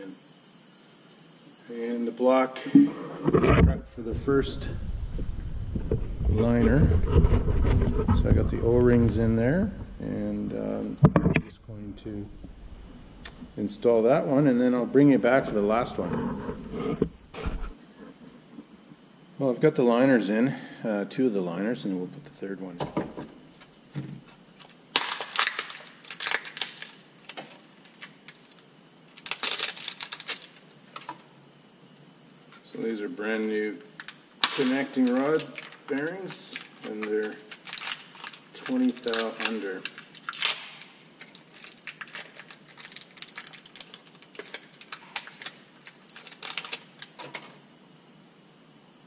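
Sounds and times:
packaging crinkling: 24.6s - 31.1s, 34.0s - 47.4s.

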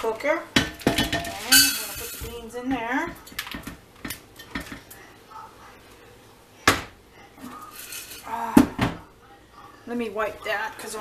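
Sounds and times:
colander and pot knocking: 0.6s - 2.4s.

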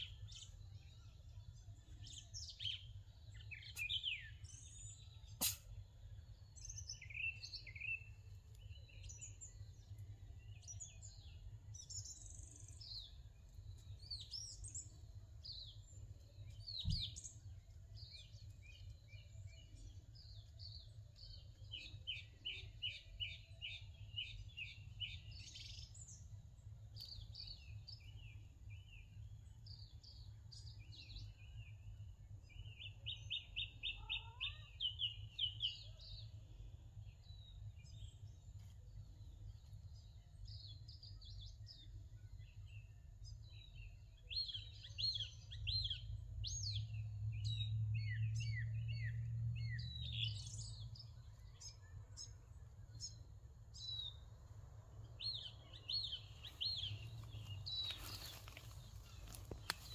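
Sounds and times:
small birds chirping: 0.0s - 59.9s
sharp thump: 5.4s - 5.6s.

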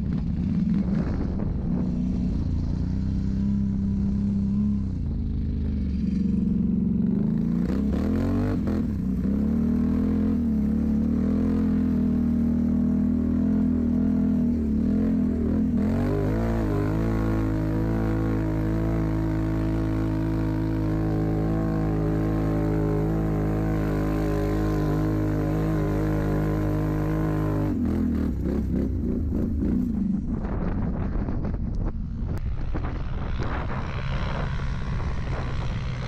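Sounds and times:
wind buffeting microphone: 0.0s - 5.4s, 28.4s - 36.0s
atv engine running hard: 0.0s - 36.0s.

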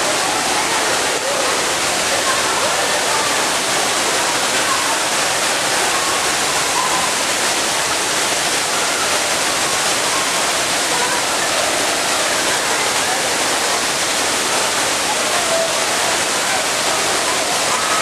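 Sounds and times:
faint voices: 0.0s - 18.0s
waterfall rushing: 0.0s - 18.0s.

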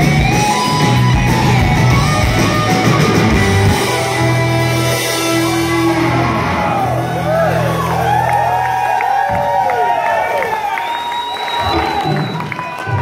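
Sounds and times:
live rock band playing: 0.0s - 9.2s.

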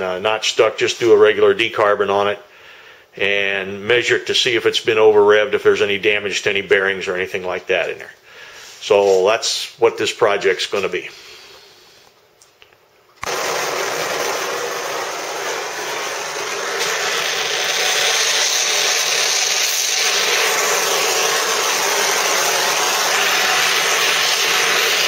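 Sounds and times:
torch flame hissing: 13.2s - 25.0s.

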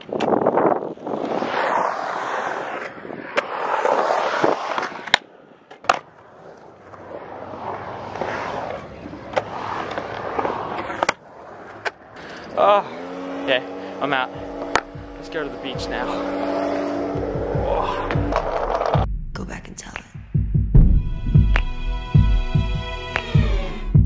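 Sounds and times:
skateboard wheels rolling on concrete: 0.0s - 13.4s, 15.9s - 19.1s
skateboard clacking on concrete: 4.6s - 7.0s, 8.1s - 12.1s.

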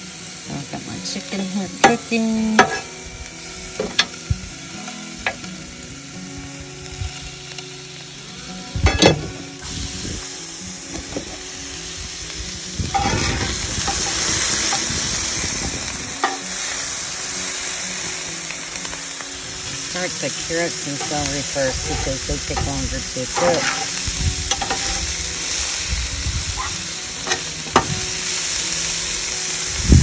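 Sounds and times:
food sizzling on griddle: 0.0s - 30.0s
metal spatula scraping: 12.9s - 14.9s, 20.5s - 25.0s.

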